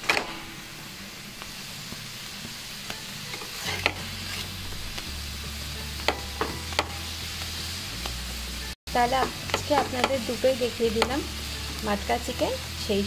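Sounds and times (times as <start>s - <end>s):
flatbread sizzling in oil: 0.0s - 13.0s
spatula scraping and clicking on pan: 3.3s - 4.6s, 9.1s - 11.8s.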